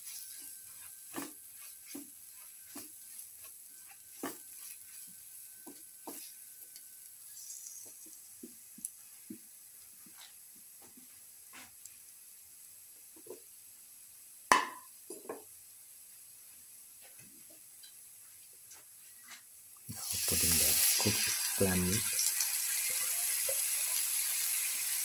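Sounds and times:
spatula scraping and tapping pan: 0:00.0 - 0:09.4, 0:10.0 - 0:11.8
vegetables sizzling in hot oil: 0:00.0 - 0:18.2, 0:19.5 - 0:25.0.

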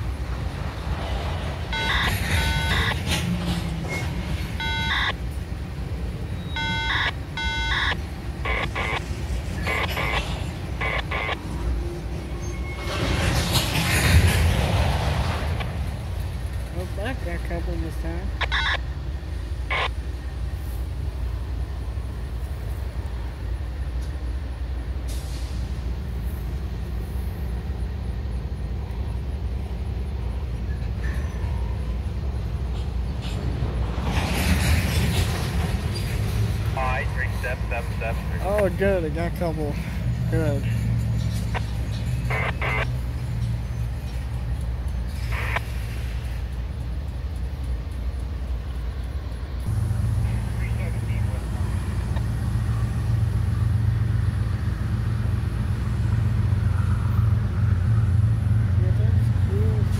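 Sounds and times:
diesel locomotive rumbling: 0:00.0 - 0:59.9
short high electronic beeps: 0:01.8 - 0:03.0, 0:06.4 - 0:07.9, 0:42.3 - 0:42.9.

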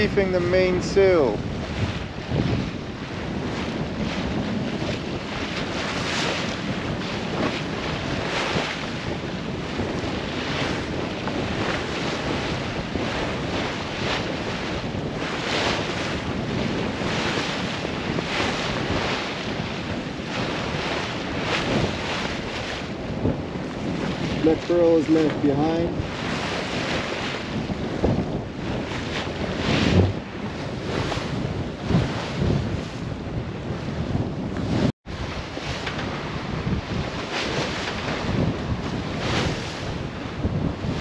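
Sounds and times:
waves splashing against hull: 0:00.0 - 0:41.0
wind buffeting microphone: 0:00.0 - 0:41.0.

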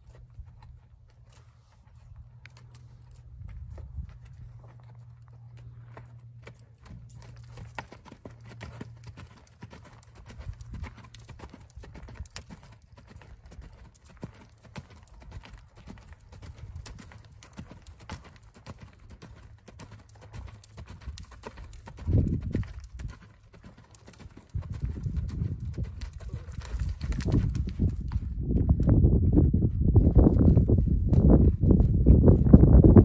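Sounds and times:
steady low rumble: 0:00.0 - 0:12.2, 0:24.5 - 0:33.0
horse hoofbeats on sand: 0:00.0 - 0:33.0.

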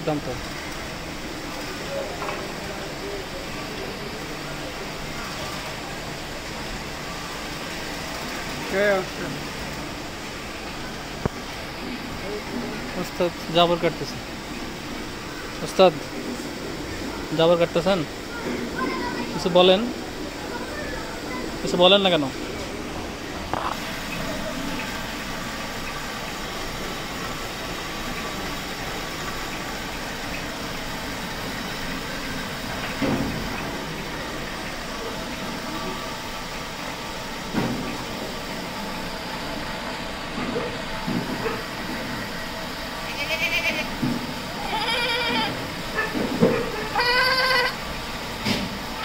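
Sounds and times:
steady background hiss: 0:00.0 - 0:49.0
goats bleating: 0:43.1 - 0:44.0, 0:44.6 - 0:45.6, 0:46.9 - 0:47.8.

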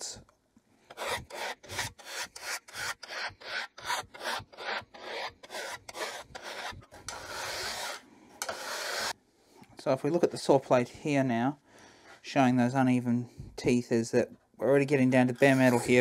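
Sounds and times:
file rasping on saw teeth: 0:00.9 - 0:09.2.

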